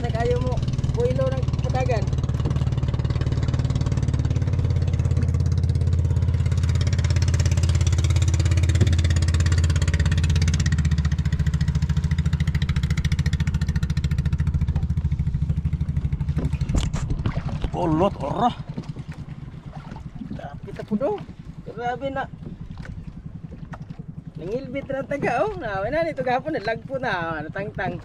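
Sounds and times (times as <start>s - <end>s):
small boat engine droning: 0.0s - 28.0s.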